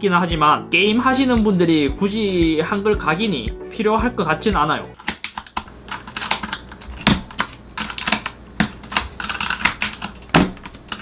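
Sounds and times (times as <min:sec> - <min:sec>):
mechanical keyboard clicks: 0:05.0 - 0:11.0.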